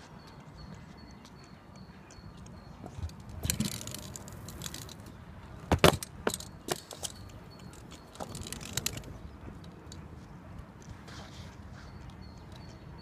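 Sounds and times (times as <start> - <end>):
scooter rolling on concrete: 2.4 - 10.2
scooter clattering impact: 3.3 - 9.1.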